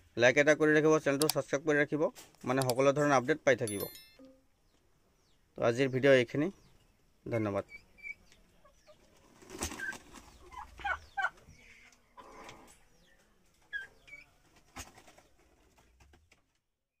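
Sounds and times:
turkeys and chickens calling: 7.7s - 12.9s, 13.6s - 15.2s.

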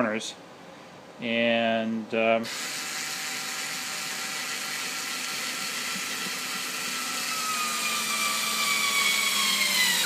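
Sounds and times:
electric screwdriver motor whine: 2.5s - 10.0s.

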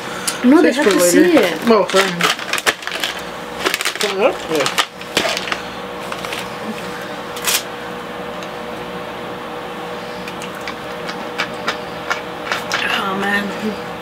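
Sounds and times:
steady room hum: 0.0s - 14.0s.

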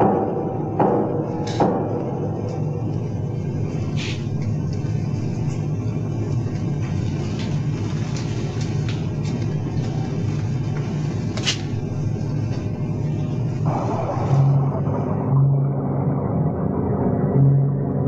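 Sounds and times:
low interior drone: 0.0s - 18.0s
low sustained music notes: 11.9s - 18.0s.

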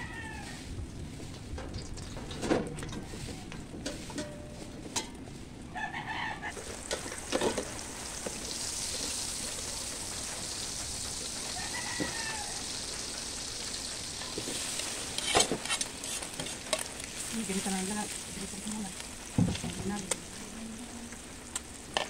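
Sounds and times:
hot oil sizzling in a pot: 6.5s - 22.0s.

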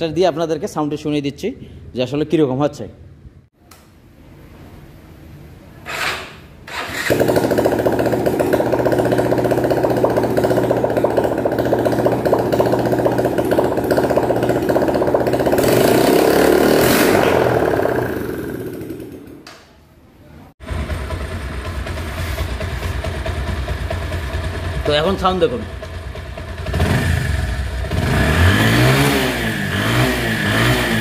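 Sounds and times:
motorcycle engine starting and running: 5.8s - 19.8s, 20.6s - 31.0s.

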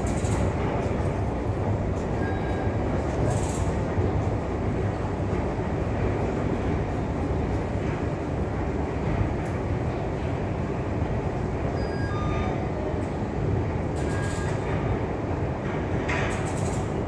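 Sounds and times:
metro train rumble: 0.0s - 17.0s.

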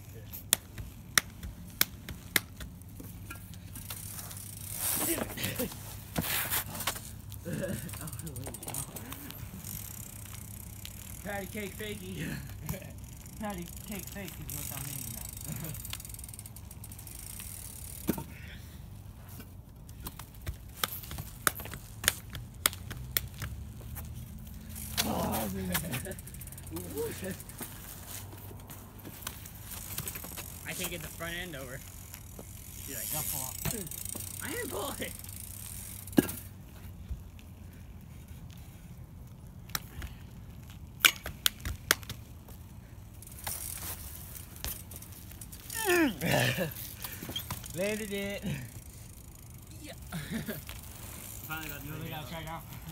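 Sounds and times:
bike rolling on asphalt: 0.0s - 52.9s.

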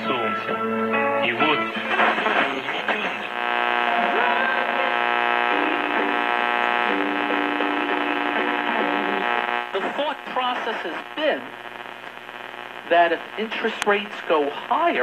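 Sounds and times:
jumble of radio stations: 0.0s - 15.0s
faint voice on radio: 1.3s - 5.9s, 9.0s - 11.7s, 12.5s - 15.0s
radio interference hum: 1.4s - 15.0s.

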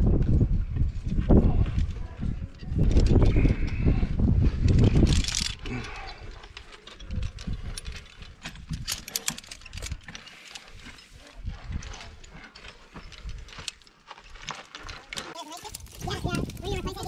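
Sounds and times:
rope rustling through hands: 4.4s - 17.0s
metal carabiners clinking: 4.6s - 17.0s.

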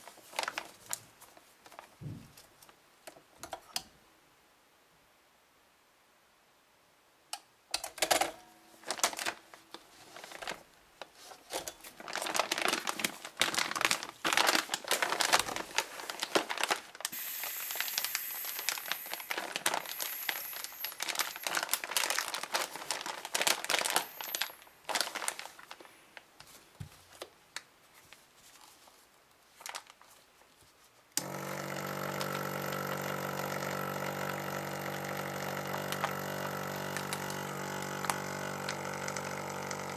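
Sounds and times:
plastic bag crinkling: 0.0s - 2.7s, 8.2s - 27.3s, 28.0s - 39.9s
electric vacuum pump humming: 17.0s - 24.6s, 31.2s - 39.9s.

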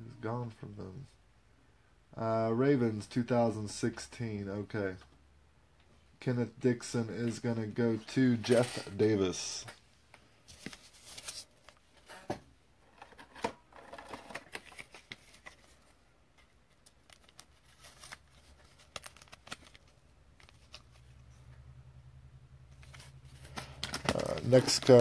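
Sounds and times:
trading cards clicking and rustling: 13.0s - 21.6s, 22.7s - 25.0s.

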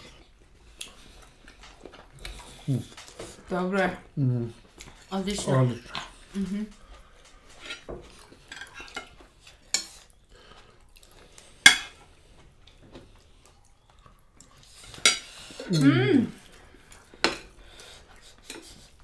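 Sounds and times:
cutlery clinking on plates: 7.6s - 10.1s, 11.6s - 12.0s, 14.9s - 15.8s.

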